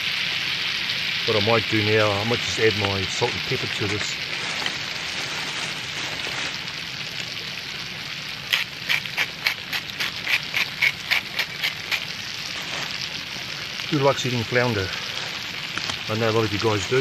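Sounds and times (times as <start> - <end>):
fish and eggs sizzling in pan: 0.0 - 17.0
seasoning grinder clicking: 8.5 - 12.0.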